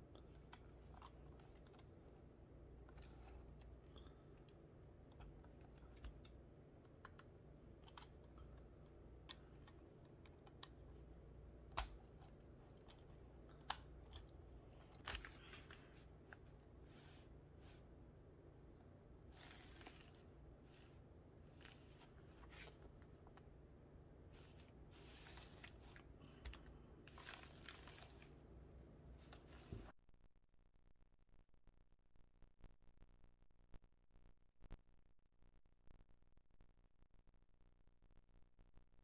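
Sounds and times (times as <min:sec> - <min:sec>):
paper rustling: 0:12.6 - 0:17.9, 0:19.3 - 0:23.4, 0:24.3 - 0:28.4, 0:29.2 - 0:29.9.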